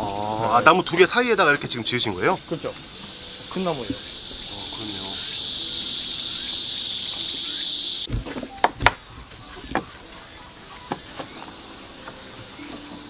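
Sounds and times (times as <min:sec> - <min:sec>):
insects buzzing: 0:00.0 - 0:13.0
brush knocking on wooden steps: 0:08.1 - 0:10.1, 0:10.8 - 0:11.6.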